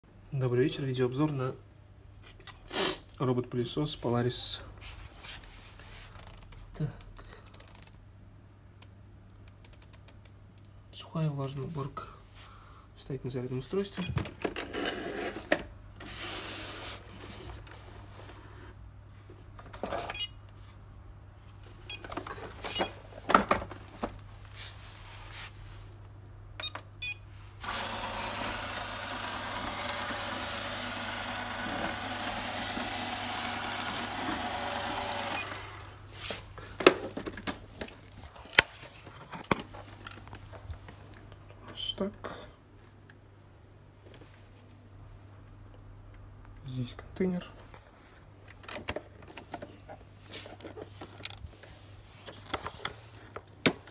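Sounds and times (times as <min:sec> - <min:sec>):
robot vacuum cleaner whirring: 0:27.6 - 0:36.0.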